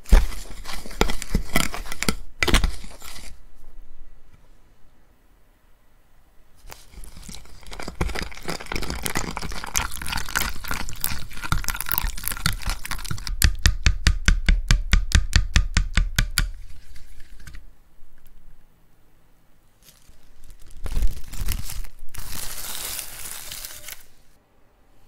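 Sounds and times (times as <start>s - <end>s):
water poured into flour: 6.7s - 13.3s
whisk mixing batter: 6.9s - 13.3s.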